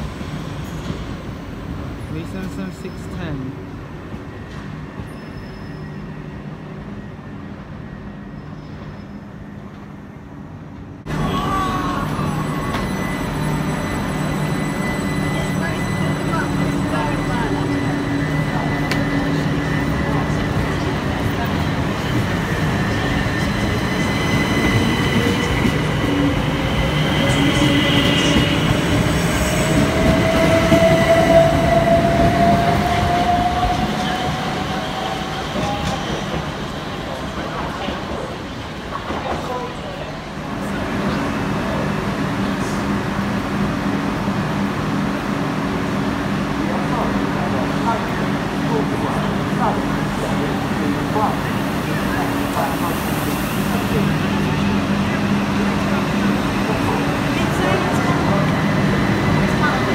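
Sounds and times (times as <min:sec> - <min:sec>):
electric train humming: 0:10.4 - 0:38.3.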